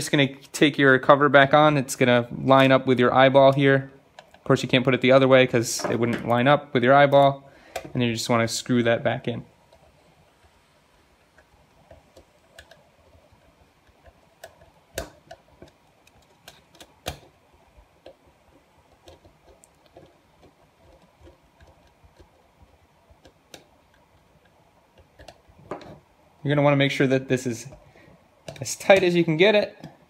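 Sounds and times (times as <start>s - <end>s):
small clicks and ticks: 9.6s - 25.5s.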